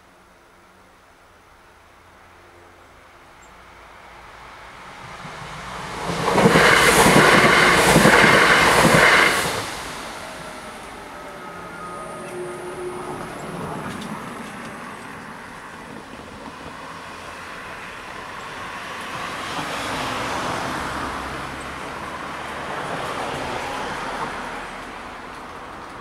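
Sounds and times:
cars driving past: 4.3 - 15.6, 17.0 - 26.0.

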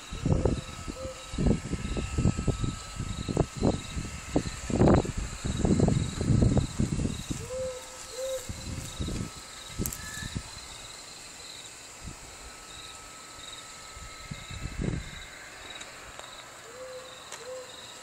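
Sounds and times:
crickets chirping: 0.0 - 18.0
owl hooting: 0.2 - 2.0, 7.1 - 9.1, 16.6 - 17.9.

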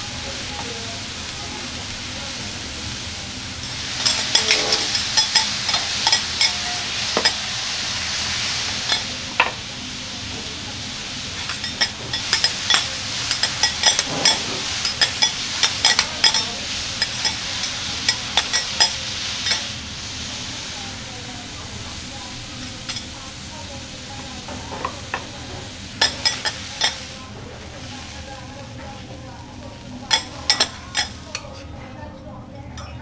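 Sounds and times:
food sizzling on griddle: 0.0 - 31.7
metal spatulas clacking and scraping: 3.6 - 6.6, 11.4 - 19.6, 30.1 - 31.7.

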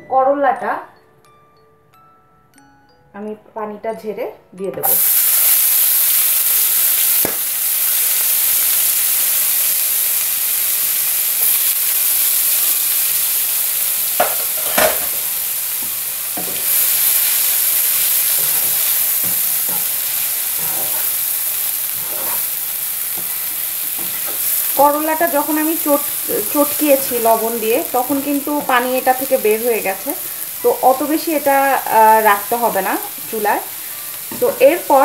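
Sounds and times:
vegetables sizzling in hot oil: 4.8 - 35.0
wooden spatula scraping a pan: 21.9 - 22.5.

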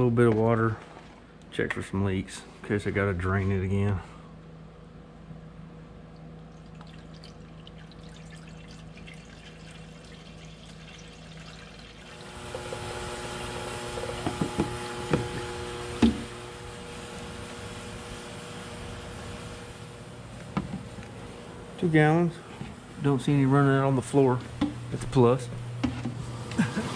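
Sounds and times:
steady low hum: 0.0 - 26.9
water running into cooling system: 6.1 - 26.9.

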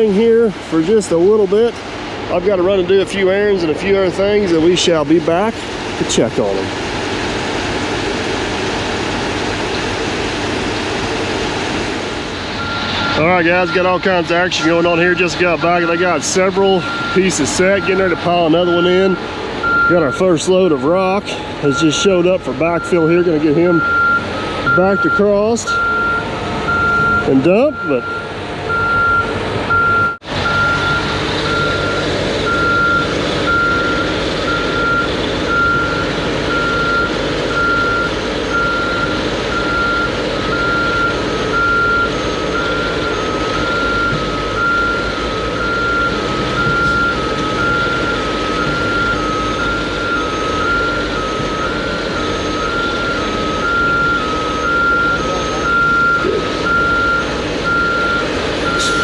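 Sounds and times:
truck backup alarm beeping: 0.0 - 6.3, 11.9 - 59.0
diesel engine running: 0.0 - 59.0
lower-pitched backup alarm: 12.6 - 59.0.

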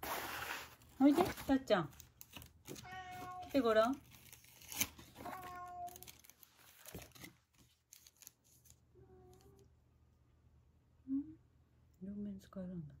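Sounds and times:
paper packaging rustling: 0.0 - 9.4
cat meowing: 2.8 - 3.6, 5.2 - 6.2.

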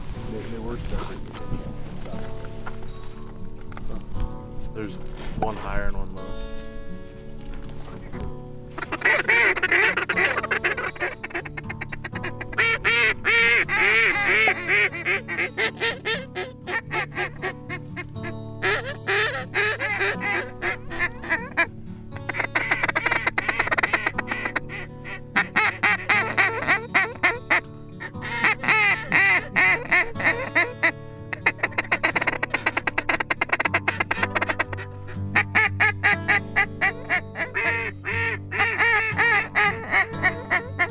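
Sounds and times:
duck call quacks: 8.8 - 40.9.

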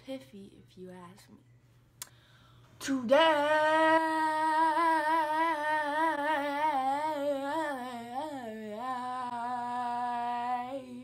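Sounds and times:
girl singing a long note: 2.8 - 11.0.

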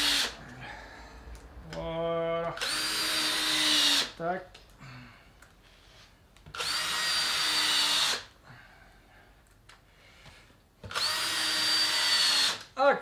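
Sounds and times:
cordless drill motor whine: 6.6 - 8.2, 10.9 - 12.6.

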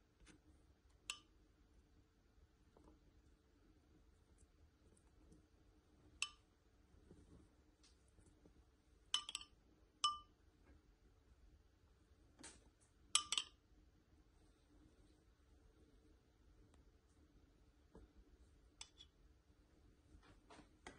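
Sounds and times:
spoon clinking ceramic bowl: 9.2 - 10.3, 13.2 - 13.6.

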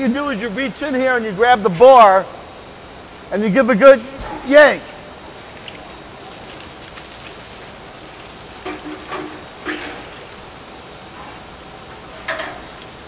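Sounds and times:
water gushing onto floor: 4.6 - 13.0.

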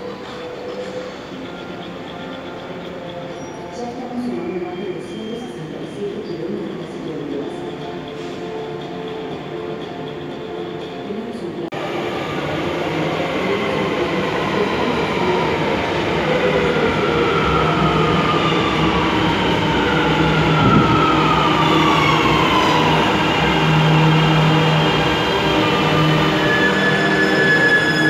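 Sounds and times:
train rumble: 5.8 - 28.0.

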